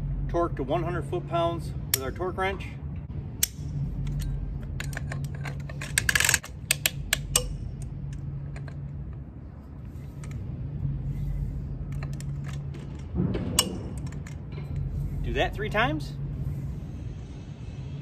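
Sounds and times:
low hum: 0.0 - 18.0
ratcheting torque wrench clicks: 3.4 - 8.8.

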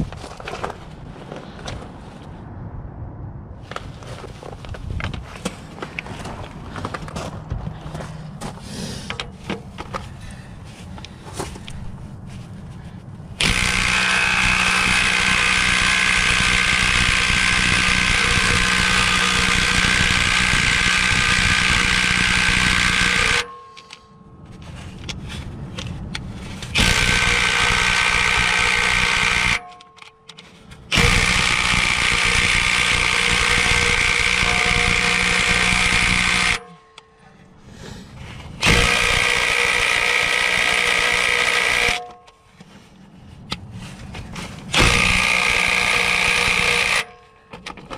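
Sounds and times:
impact wrench hammering: 13.4 - 24.1, 26.7 - 37.1, 38.6 - 42.3, 44.7 - 47.9.

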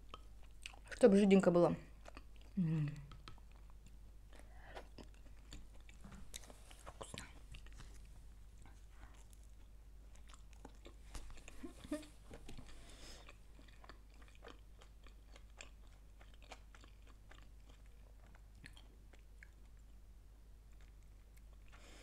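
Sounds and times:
chewing food: 0.0 - 1.0, 1.8 - 22.0
wet mouth clicks: 2.9 - 3.7.

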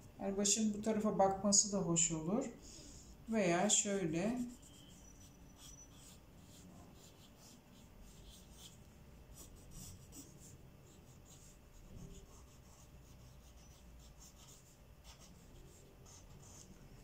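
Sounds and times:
pencil scratching on paper: 3.7 - 17.0.

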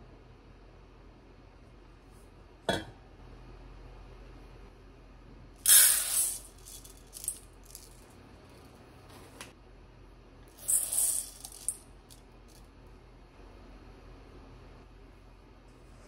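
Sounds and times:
sharp clink: 5.7 - 6.5
rice pouring into metal bowl: 5.7 - 7.9, 10.6 - 11.8.

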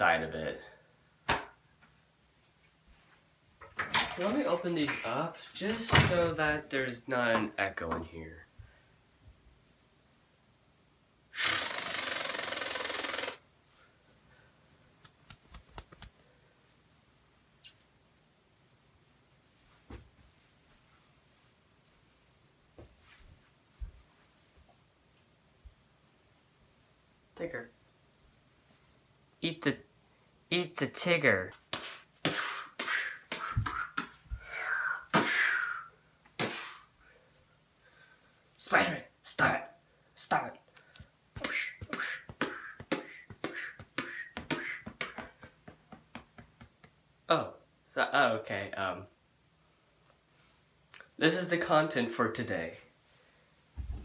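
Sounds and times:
person making mouth sound effects: 11.4 - 13.4, 32.3 - 36.8, 41.4 - 45.4.

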